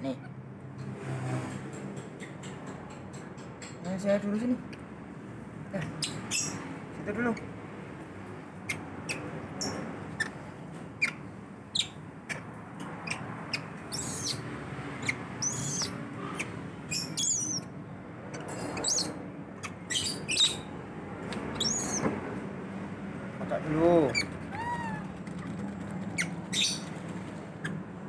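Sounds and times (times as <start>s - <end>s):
baby monkey wavering squeals: 5.8s - 6.7s, 11.0s - 12.4s, 13.0s - 17.7s, 18.3s - 20.7s, 21.6s - 22.0s, 24.1s - 26.9s
baby monkey squeaking: 5.8s - 7.6s, 8.6s - 10.4s, 11.0s - 17.7s, 18.3s - 20.7s, 21.5s - 22.1s, 24.1s - 26.9s.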